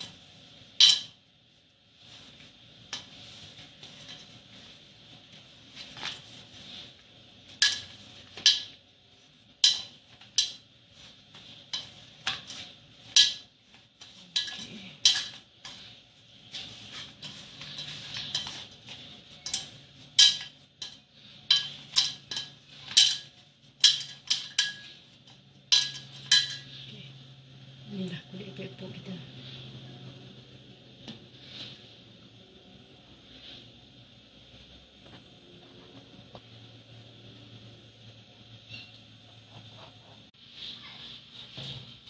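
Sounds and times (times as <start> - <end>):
hands kneading dough: 0.0 - 36.6
metal bowl knocking and clanking: 25.7 - 26.7.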